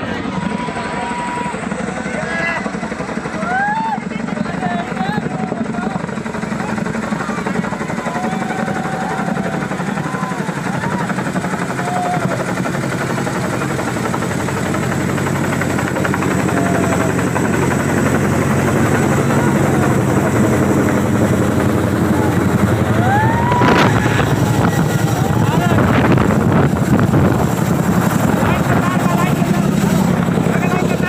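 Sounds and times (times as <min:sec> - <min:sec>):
helicopter rotor chop: 0:00.0 - 0:31.0
brief rising call: 0:22.0 - 0:26.2.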